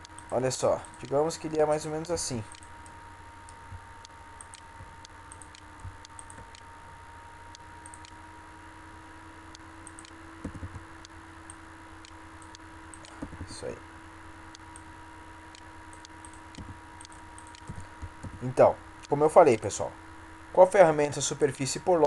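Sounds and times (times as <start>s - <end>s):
computer mouse clicks: 0.0s - 1.2s, 2.5s - 3.6s, 4.4s - 4.7s, 5.3s - 6.7s, 7.5s - 8.2s, 9.8s - 10.8s, 11.5s - 13.6s, 15.5s - 18.4s
low hum and hiss: 0.0s - 22.0s.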